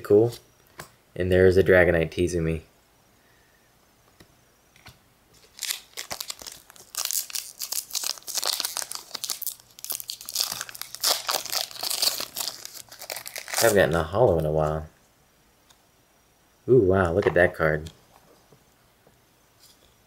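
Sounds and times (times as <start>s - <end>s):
foil wrapper crinkling and tearing: 5.4s - 14.6s.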